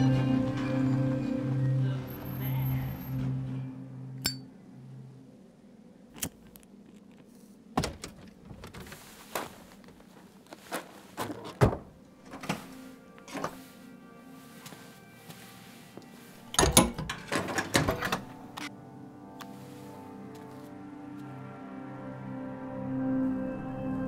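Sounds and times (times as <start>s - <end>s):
music: 0.0s - 4.9s, 12.2s - 24.0s
car door clunking: 7.8s - 9.0s.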